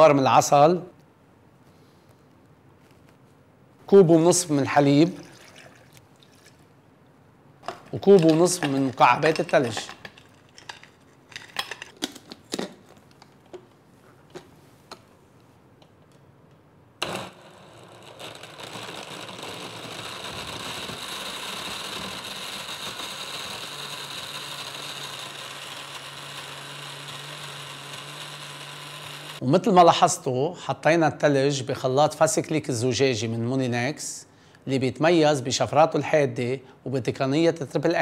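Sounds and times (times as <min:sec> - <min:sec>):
blender crushing ice: 0:08.1 - 0:10.8, 0:17.0 - 0:29.4.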